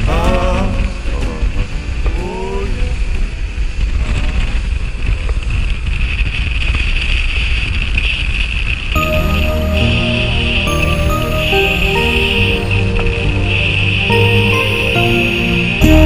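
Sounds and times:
music: 0:00.0 - 0:04.6, 0:09.0 - 0:16.0
wind blasting microphone: 0:00.0 - 0:09.0
water rushing and spray: 0:08.5 - 0:16.0.

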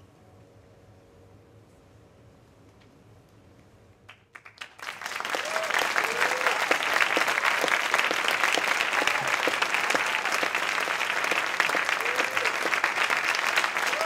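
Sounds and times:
audience applauding: 0:04.1 - 0:14.0.

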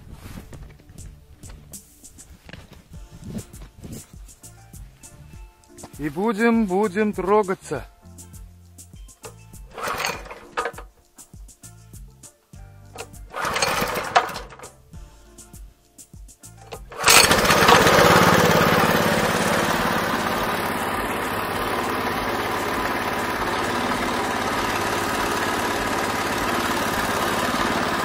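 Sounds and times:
small petrol engine starting and idling: 0:09.2 - 0:10.9, 0:13.0 - 0:14.8, 0:16.6 - 0:28.0.

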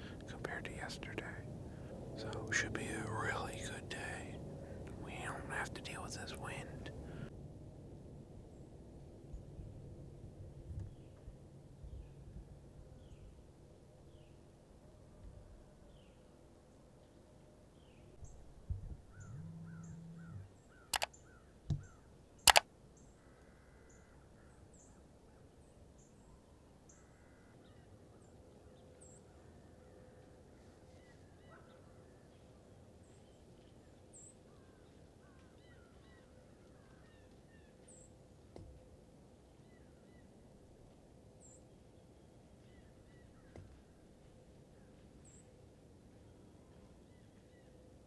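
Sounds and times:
sharp clicks: 0:20.9 - 0:21.1.

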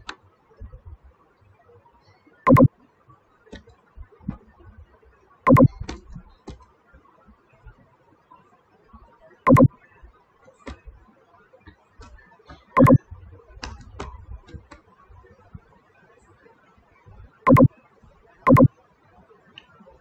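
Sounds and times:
keyboard and mouse clicks: 0:02.5 - 0:02.7, 0:05.5 - 0:06.6, 0:09.5 - 0:09.7, 0:12.0 - 0:13.0, 0:17.5 - 0:17.7, 0:18.5 - 0:18.7.

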